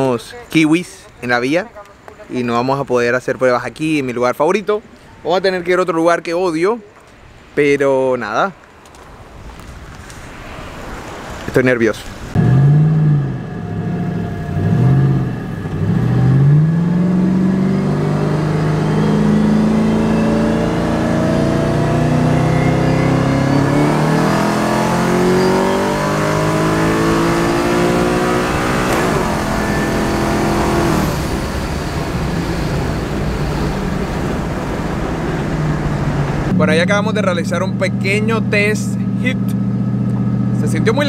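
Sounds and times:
car engine accelerating: 12.3s - 41.0s.

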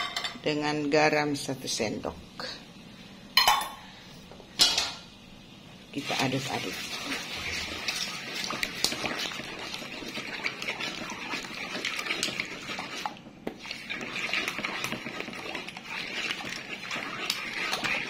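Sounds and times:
liquid sloshing: 6.1s - 18.0s
spatula scraping metal pan: 6.6s - 18.0s.

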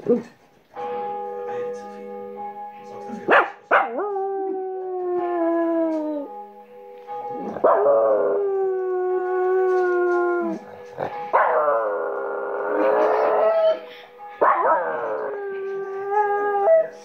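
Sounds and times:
held music notes: 0.0s - 17.0s
dog howling: 7.4s - 17.0s.

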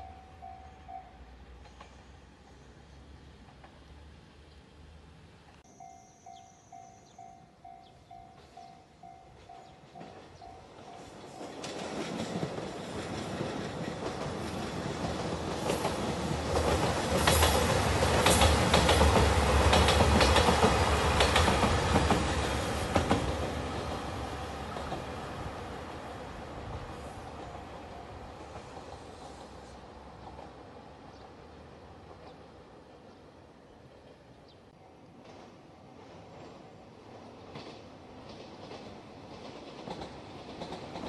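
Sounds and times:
level crossing warning bell: 0.0s - 1.3s, 5.7s - 11.6s
diesel train engines running: 0.0s - 32.9s
train wheels clacking over rail joints: 9.5s - 24.0s, 37.5s - 41.0s.

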